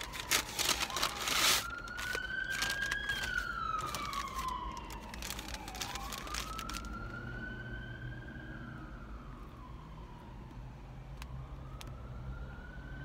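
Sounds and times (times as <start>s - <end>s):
paper crinkling: 0.0s - 7.0s
wail siren: 0.0s - 13.0s.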